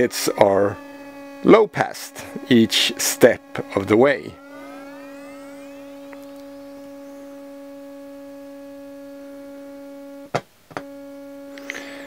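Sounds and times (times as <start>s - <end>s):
high overtones gliding upward: 0.0s - 9.4s
low test tone: 0.0s - 10.3s.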